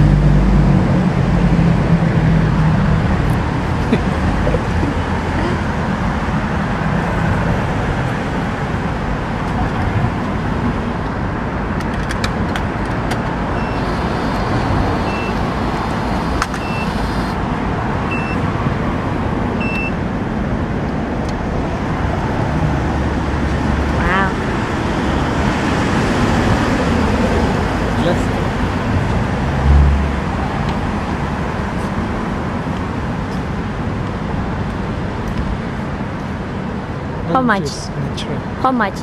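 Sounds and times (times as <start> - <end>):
city street traffic: 0.0 - 39.0
short high beeps: 13.6 - 15.4, 16.2 - 17.4.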